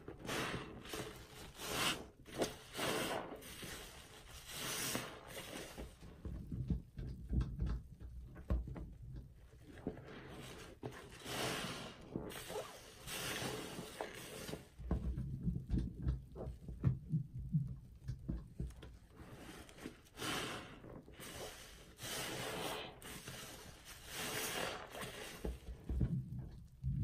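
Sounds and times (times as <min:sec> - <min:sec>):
sponge squelching: 0:00.0 - 0:07.4, 0:09.5 - 0:17.6, 0:18.3 - 0:27.0
hissing foam: 0:00.1 - 0:05.9, 0:11.1 - 0:14.7, 0:19.3 - 0:26.0.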